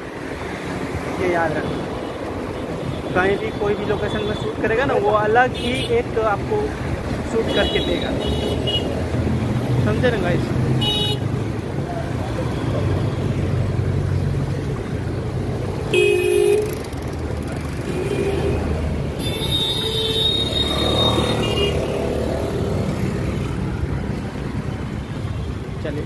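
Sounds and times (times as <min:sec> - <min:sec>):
road traffic noise: 0:00.0 - 0:26.0
vehicle horn: 0:15.9 - 0:16.7, 0:19.2 - 0:22.0.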